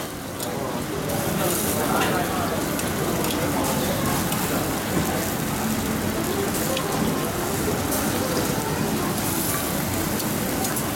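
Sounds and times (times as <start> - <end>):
meat sizzling on grill: 0.1 - 10.9.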